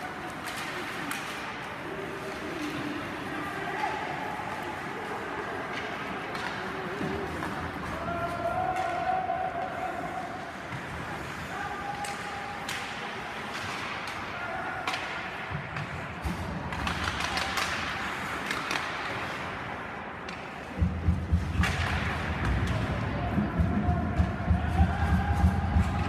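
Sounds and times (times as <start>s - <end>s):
skates scraping on ice: 0.0s - 23.3s
hockey sticks and puck clacking: 0.0s - 26.0s
people shouting: 7.8s - 10.5s, 23.1s - 26.0s.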